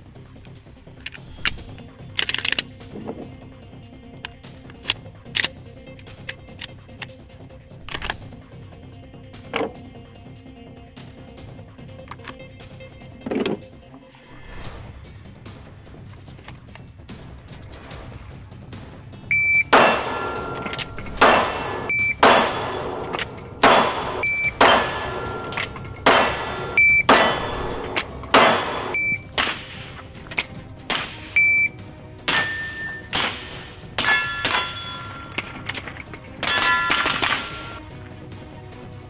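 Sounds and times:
shot timer beeps: 0:19.3 - 0:22.6, 0:23.8 - 0:27.3, 0:28.6 - 0:29.4, 0:31.3 - 0:31.8
steel targets ringing: 0:19.3 - 0:30.1, 0:30.9 - 0:31.7, 0:32.3 - 0:37.8
pistol shots: 0:19.6 - 0:31.4, 0:32.3 - 0:37.8.

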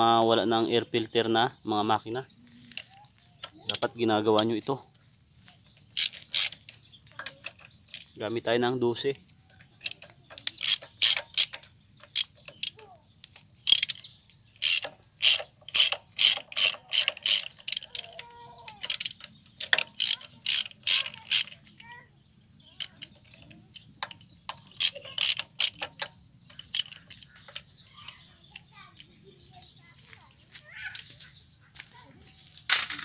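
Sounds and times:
ratchet wrench clicking: 0:02.7 - 0:04.6, 0:05.8 - 0:08.1, 0:09.8 - 0:21.9, 0:22.8 - 0:28.7.

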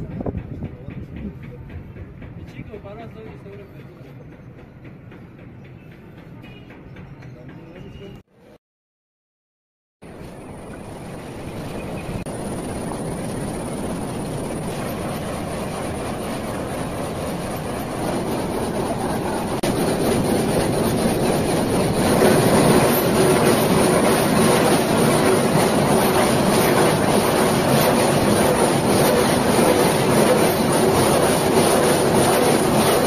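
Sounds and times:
industrial machinery noise: 0:10.1 - 0:33.0.

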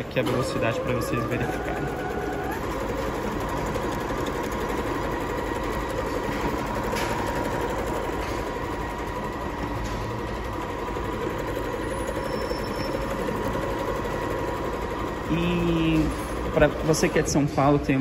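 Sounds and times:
sewing machine motor whine: 0:00.0 - 0:18.0
sewing machine needle clatter: 0:01.5 - 0:08.8.

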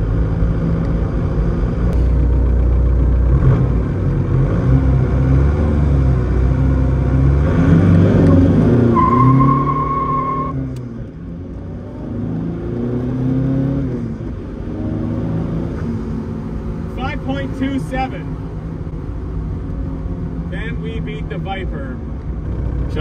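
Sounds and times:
car engine accelerating: 0:00.0 - 0:23.0
high electronic tone: 0:09.0 - 0:10.6.

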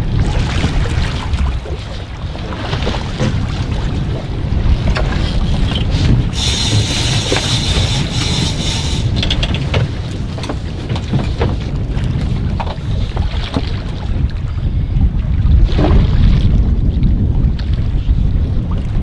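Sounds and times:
water splashes: 0:00.0 - 0:14.3
sea noise: 0:00.0 - 0:17.8
wind buffeting microphone: 0:00.0 - 0:19.0.

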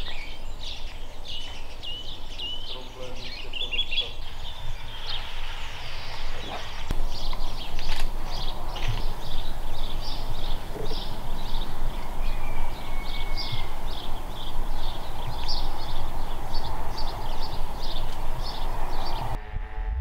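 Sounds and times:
small birds chirping: 0:00.0 - 0:19.4
steady rushing noise: 0:04.1 - 0:20.0.

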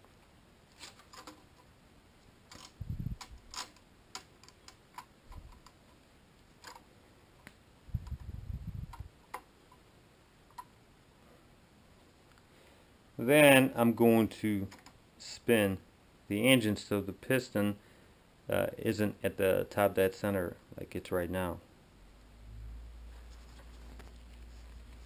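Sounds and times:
dull low thumps: 0:07.9 - 0:09.1.

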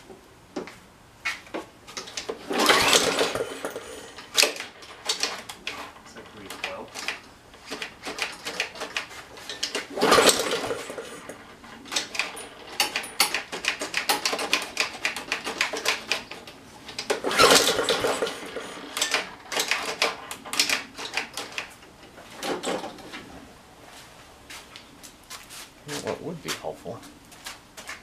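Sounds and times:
irregular clicking and clattering: 0:00.6 - 0:23.3
mower recoil starter cranking: 0:01.9 - 0:21.8.

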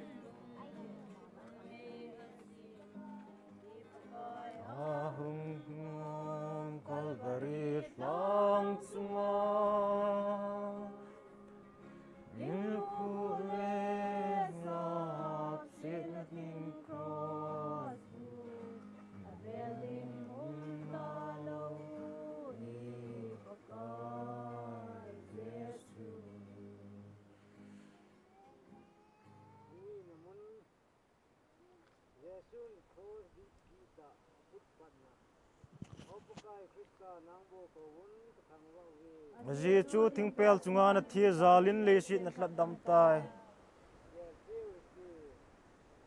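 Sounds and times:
congregation singing a hymn: 0:00.0 - 0:27.2, 0:39.4 - 0:43.6.

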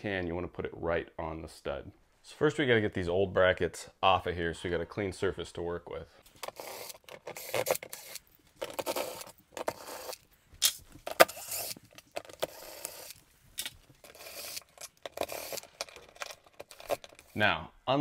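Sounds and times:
drill-driver backing out screws: 0:06.4 - 0:10.2, 0:11.1 - 0:13.2, 0:14.0 - 0:17.3.

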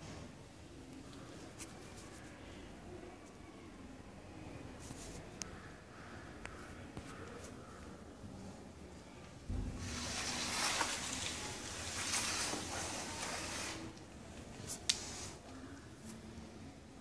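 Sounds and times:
plastic sheet rustling: 0:09.5 - 0:15.5.

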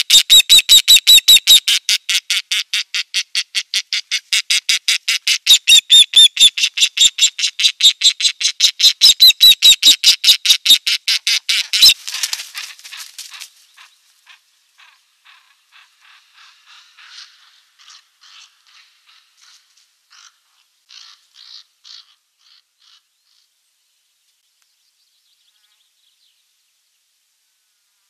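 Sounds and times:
bird whistled chirps: 0:09.0 - 0:10.0.

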